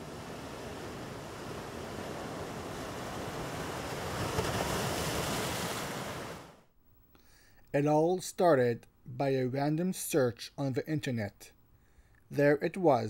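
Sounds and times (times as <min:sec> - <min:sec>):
ocean surf washing in: 0:00.0 - 0:06.7
wind: 0:00.0 - 0:06.7.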